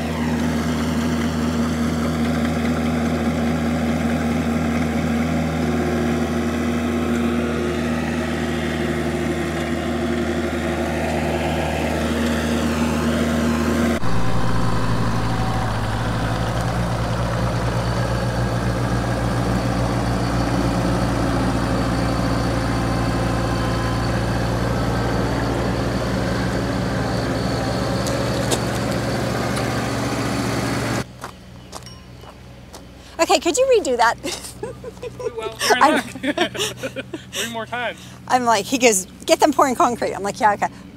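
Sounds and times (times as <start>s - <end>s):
mini loader engine running: 0.0s - 40.9s.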